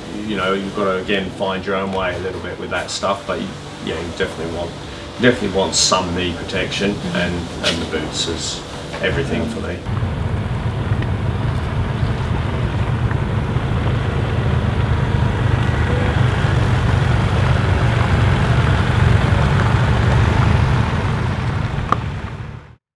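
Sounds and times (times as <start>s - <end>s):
motorcycles rumbling on gravel: 0.2s - 22.8s.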